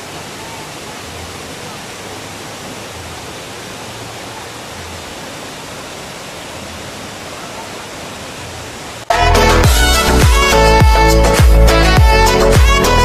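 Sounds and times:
waterfall rushing: 0.0s - 13.0s.

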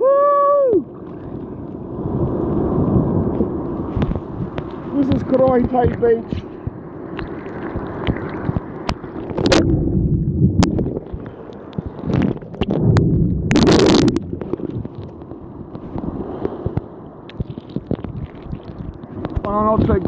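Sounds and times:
wind on microphone: 0.0s - 20.0s
surf breaking: 0.8s - 20.0s
water splashing over phone: 3.9s - 9.8s, 16.6s - 20.0s.

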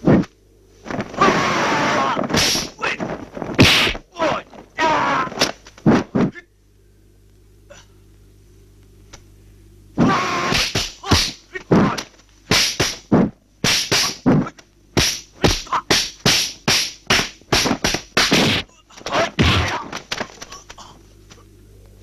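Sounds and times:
punch and block whacks: 2.0s - 4.0s, 10.0s - 20.3s.

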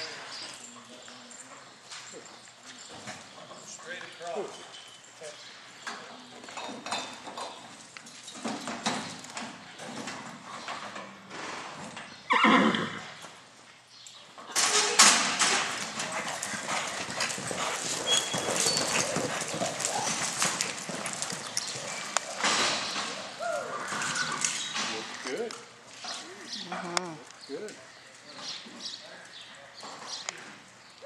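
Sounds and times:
horse hooves shifting: 0.3s - 31.0s
horse whinnying: 12.3s - 13.2s, 14.8s - 22.4s, 23.1s - 24.8s
galloping hoofbeats on dirt: 15.3s - 24.7s.

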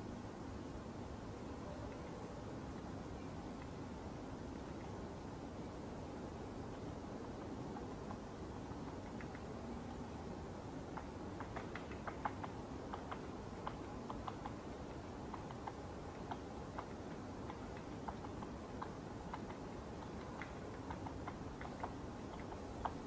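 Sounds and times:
low steady background hiss: 0.0s - 23.0s
woodpecker tapping on wood: 6.7s - 10.0s, 10.8s - 23.0s.

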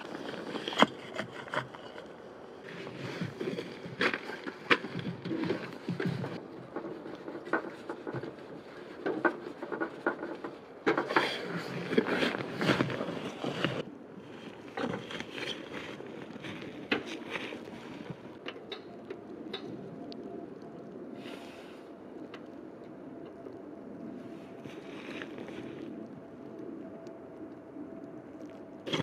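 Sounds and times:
crunching in snow: 0.0s - 6.4s, 11.1s - 18.4s, 24.2s - 26.1s.

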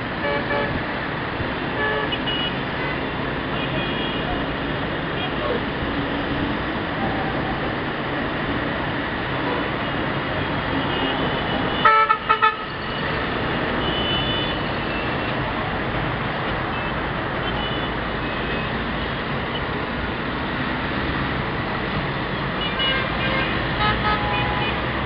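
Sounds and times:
road traffic rumble: 0.0s - 25.0s
vehicle horn honking: 10.9s - 12.7s, 13.8s - 15.0s, 22.6s - 24.8s.

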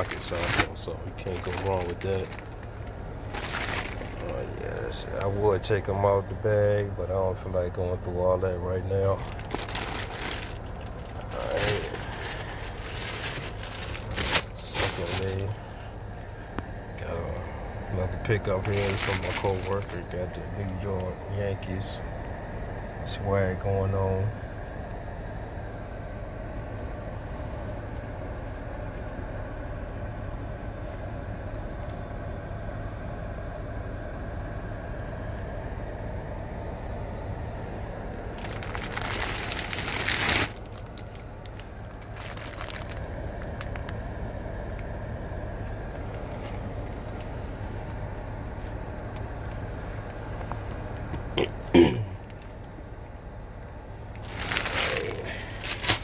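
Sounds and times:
plastic bag crinkling: 0.0s - 4.4s, 9.1s - 15.5s, 18.5s - 20.0s, 38.3s - 43.9s, 46.0s - 47.1s, 54.1s - 56.0s
fan hum: 0.0s - 56.0s.

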